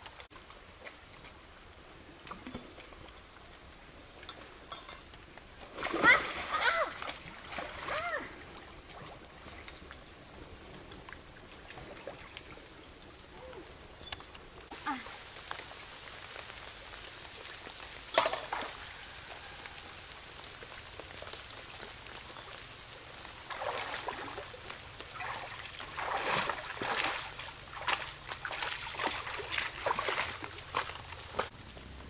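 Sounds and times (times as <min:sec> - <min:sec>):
stream trickling: 0:00.0 - 0:32.0
hands splashing in water: 0:25.1 - 0:31.5.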